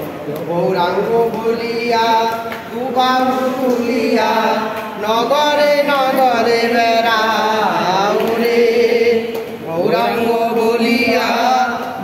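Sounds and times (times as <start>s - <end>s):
man leading chant: 0.2s - 12.0s
group chanting: 0.5s - 12.0s.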